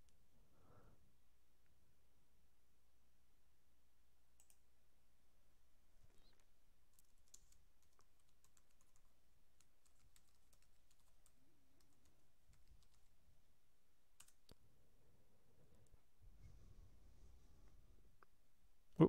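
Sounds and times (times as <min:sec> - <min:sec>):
keyboard typing: 0:04.4 - 0:04.6, 0:06.1 - 0:13.2, 0:14.2 - 0:14.6.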